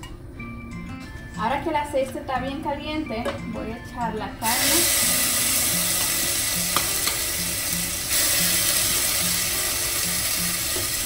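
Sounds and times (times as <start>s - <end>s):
meat sizzling in hot oil: 4.5s - 11.0s.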